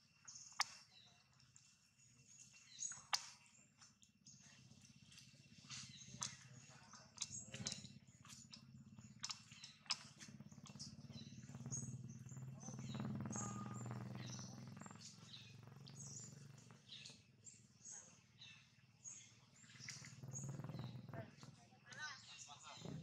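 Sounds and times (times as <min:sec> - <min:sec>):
low steady hum: 0:07.2 - 0:18.4
high bird chirps: 0:08.5 - 0:21.5.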